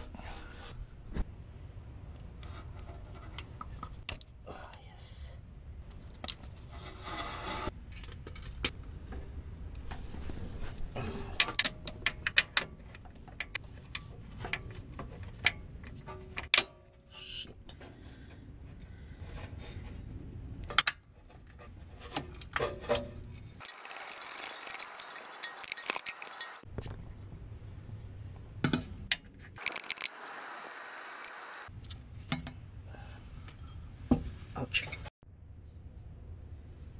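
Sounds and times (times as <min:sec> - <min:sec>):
metal tools clinking: 0:07.9 - 0:08.7, 0:23.6 - 0:26.6.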